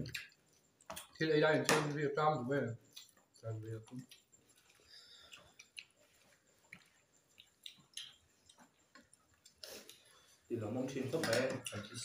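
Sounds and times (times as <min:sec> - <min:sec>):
faint chewing: 0:02.8 - 0:10.5
fingers squishing food on plates: 0:02.8 - 0:10.5.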